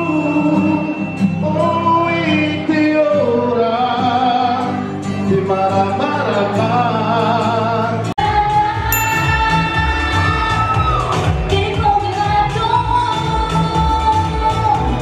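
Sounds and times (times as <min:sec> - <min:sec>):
musical accompaniment: 0:00.0 - 0:15.0
person singing with vibrato: 0:00.0 - 0:15.0.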